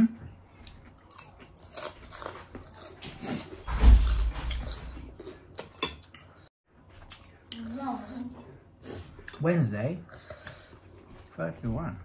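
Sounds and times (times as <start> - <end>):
crunchy chewing: 0.6 - 6.2.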